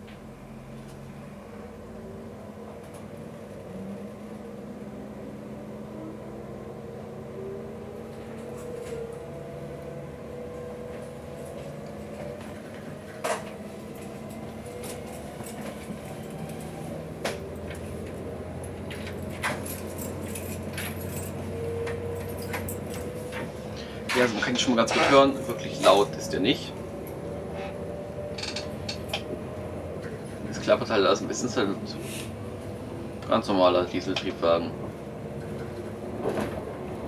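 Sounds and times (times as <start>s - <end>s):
diesel railcar engine hum: 0.0s - 37.0s
clicks and light rattles: 28.3s - 29.2s.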